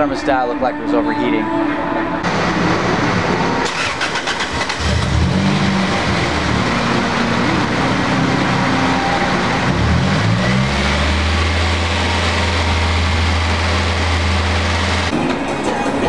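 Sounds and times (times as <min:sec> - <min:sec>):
steady rushing noise: 0:02.2 - 0:10.4
car engine revving: 0:02.2 - 0:15.2.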